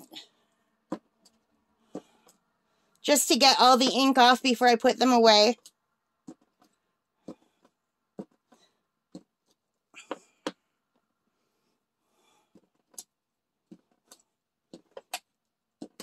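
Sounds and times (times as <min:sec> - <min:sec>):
rubber stamps tapping on paper: 0:12.5 - 0:16.0.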